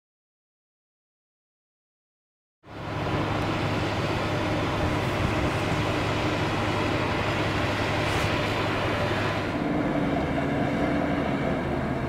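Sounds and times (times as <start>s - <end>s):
bulldozer diesel engine running: 2.7s - 12.0s.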